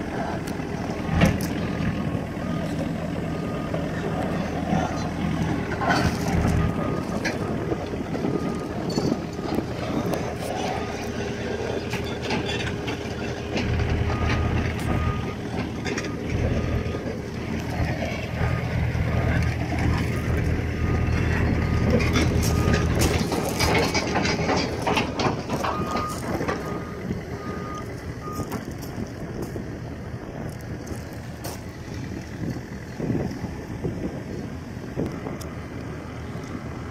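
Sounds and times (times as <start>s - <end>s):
excavator diesel engine running: 0.0s - 36.9s
faint backup alarm beeping: 14.0s - 15.4s, 25.6s - 28.6s.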